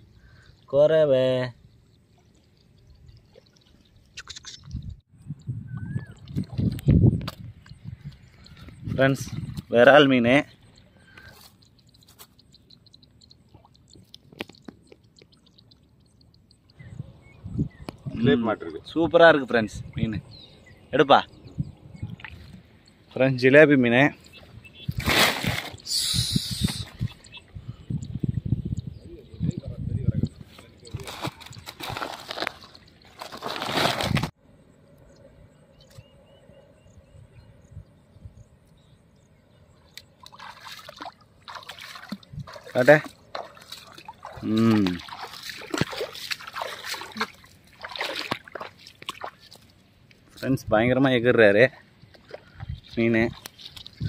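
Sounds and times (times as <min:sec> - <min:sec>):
high bird chirps: 0:01.6 - 0:06.8, 0:10.4 - 0:18.2, 0:24.1 - 0:25.0, 0:25.7 - 0:29.5
fish wriggling over dry grass: 0:30.9 - 0:34.3
plastic sack rustling: 0:31.0 - 0:34.3.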